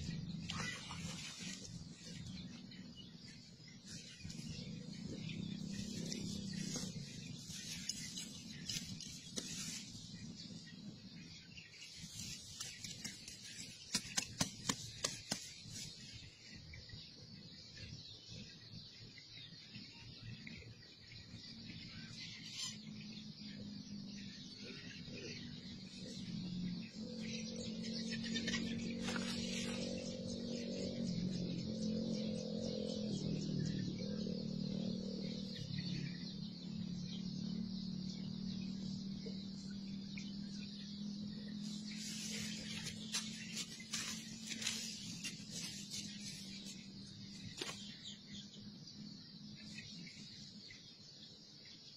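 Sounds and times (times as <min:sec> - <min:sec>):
birds chirping: 0:00.0 - 0:51.9
steady low hum: 0:00.0 - 0:51.9
hands rustling through grass: 0:05.6 - 0:10.2, 0:41.8 - 0:47.9.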